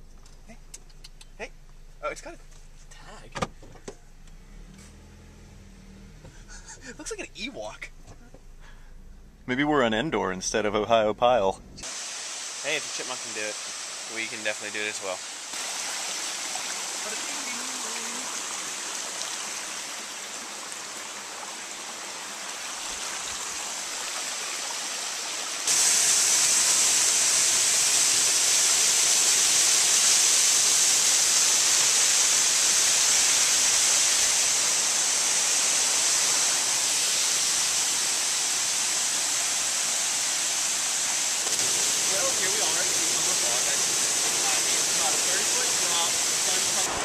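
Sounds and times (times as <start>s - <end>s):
stream water rushing: 11.8s - 47.0s
waterfall pouring over rock: 11.8s - 47.0s.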